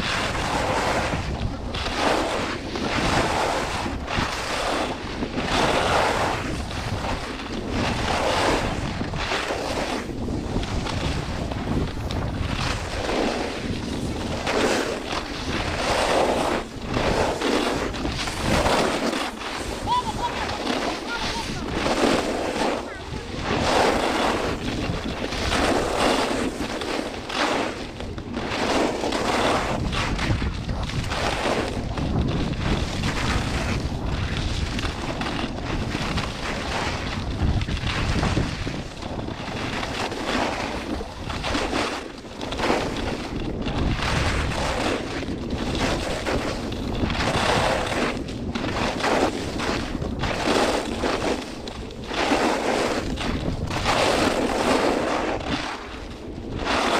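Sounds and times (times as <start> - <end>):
skis scraping on icy snow: 0.0 - 56.9
wind buffeting microphone: 0.0 - 56.9.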